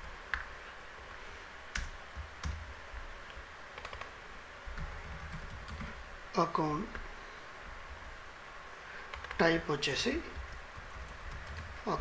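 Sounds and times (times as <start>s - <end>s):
keyboard keystrokes and clicks: 3.2s - 4.1s, 9.1s - 9.4s, 10.3s - 11.8s.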